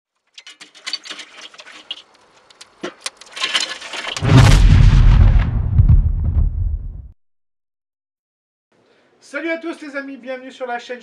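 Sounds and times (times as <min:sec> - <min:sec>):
charcoal crackling and popping: 0:00.1 - 0:05.5
low rushing roar of flame: 0:04.2 - 0:07.0.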